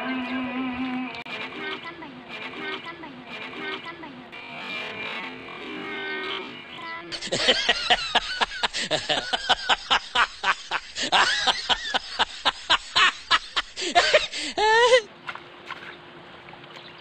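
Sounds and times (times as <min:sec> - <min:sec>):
rapid loud laughter: 0:07.1 - 0:15.1.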